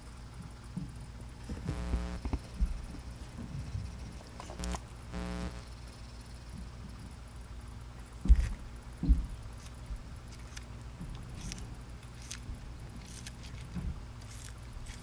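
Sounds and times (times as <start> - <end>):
steady low hum: 0.0 - 15.0
dull low thumps: 1.6 - 4.0
tortoise crunching leaves: 11.4 - 15.0.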